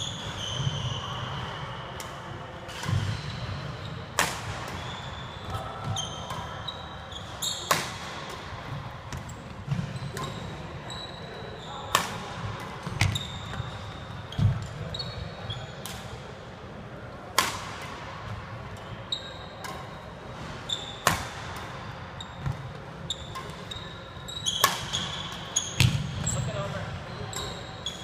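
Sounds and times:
sneaker squeaks on wooden floor: 0.0s - 1.4s, 2.8s - 4.1s, 4.7s - 8.1s, 9.1s - 12.2s, 12.8s - 15.8s, 19.0s - 21.4s, 22.2s - 28.0s
rackets striking shuttlecocks: 21.0s - 21.8s.

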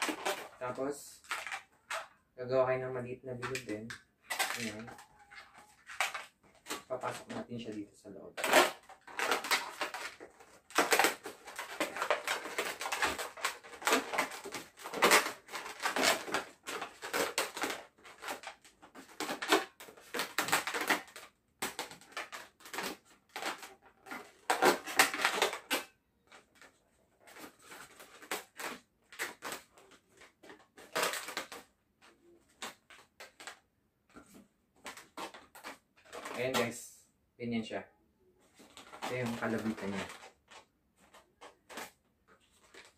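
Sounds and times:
balloons rubbing and squeaking: 0.0s - 2.2s, 4.2s - 25.9s, 38.5s - 42.9s.

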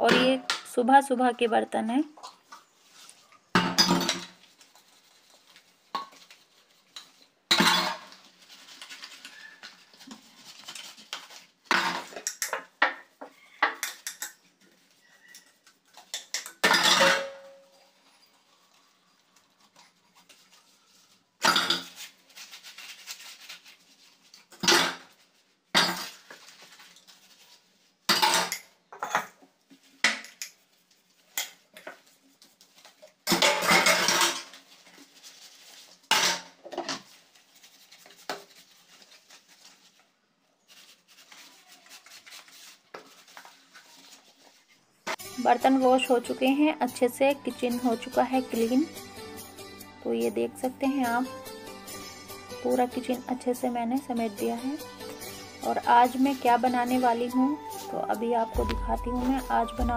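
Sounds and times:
steel dishes clattering in sink: 3.6s - 4.4s, 7.0s - 8.2s, 16.0s - 17.7s, 33.3s - 34.6s.

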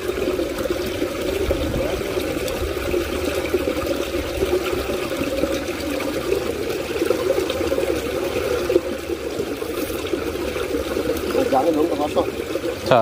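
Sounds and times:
running water pouring: 0.0s - 13.0s.

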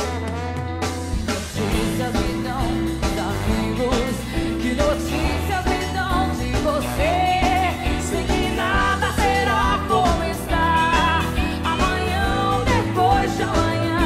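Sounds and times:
trombone playing: 0.0s - 2.4s
bass guitar: 0.0s - 14.0s
woman singing lead vocal: 1.3s - 14.0s.

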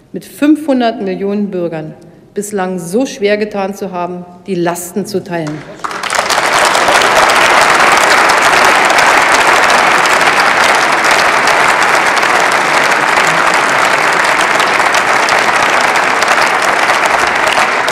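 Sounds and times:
crowd applauding: 5.5s - 17.9s.

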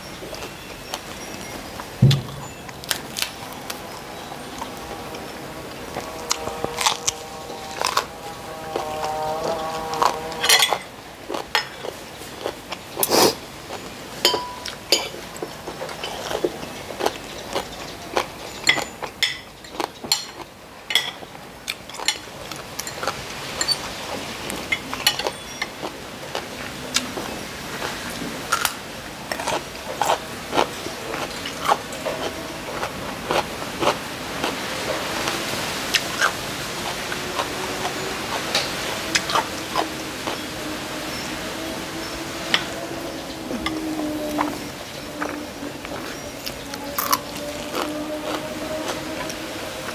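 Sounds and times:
chewing: 2.6s - 40.5s, 43.5s - 49.9s
cutlery scraping ceramic plate: 10.3s - 10.9s.

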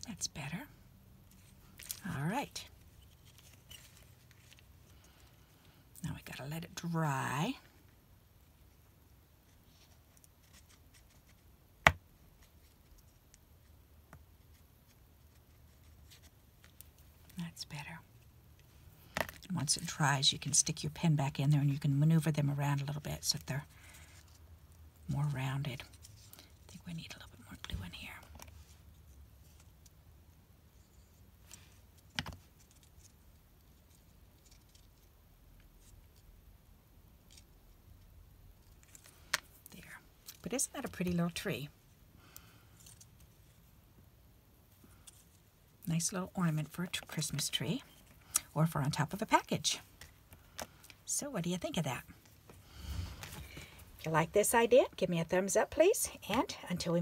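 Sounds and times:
paper rustling: 2.9s - 5.1s.

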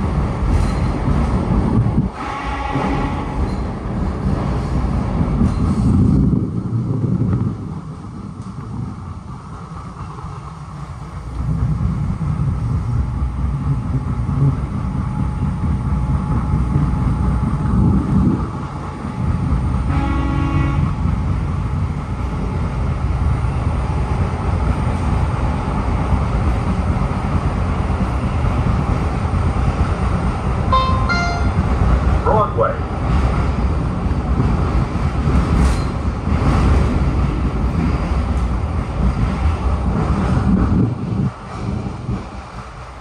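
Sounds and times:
train rumbling on rails: 0.0s - 43.0s
train horn blast: 2.1s - 3.4s, 19.9s - 21.0s, 30.7s - 31.6s
brief high tones: 30.7s - 31.8s.

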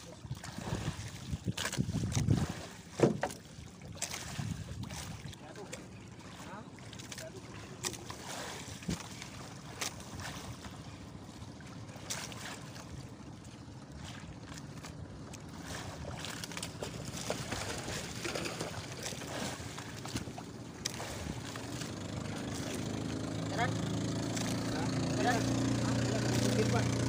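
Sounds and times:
sea washing around boat: 0.0s - 27.0s
wind: 0.0s - 27.0s
fish splashing at surface: 15.6s - 23.2s.

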